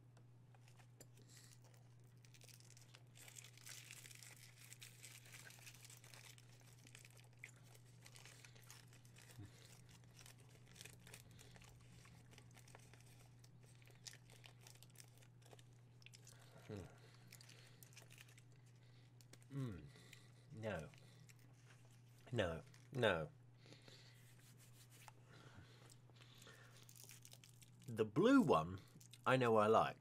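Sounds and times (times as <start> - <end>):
faint crackles and clicks: 0.1 - 23.0, 25.8 - 27.9.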